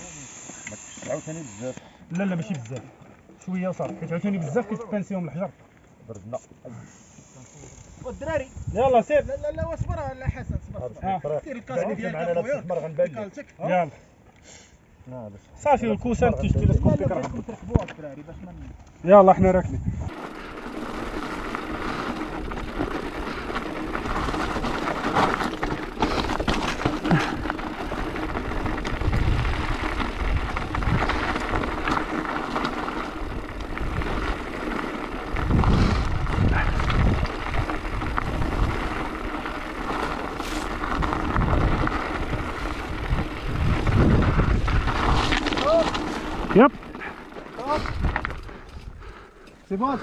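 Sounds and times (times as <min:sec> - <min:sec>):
bike tyres on loose stones: 0:00.0 - 0:13.4, 0:15.6 - 0:50.0
wind rumbling on microphone: 0:07.9 - 0:11.0, 0:16.0 - 0:17.5, 0:18.4 - 0:49.3.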